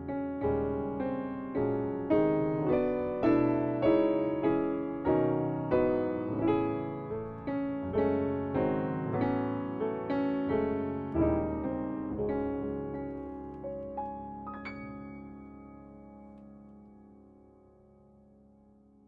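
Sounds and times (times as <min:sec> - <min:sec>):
piano chords: 0:00.0 - 0:19.0.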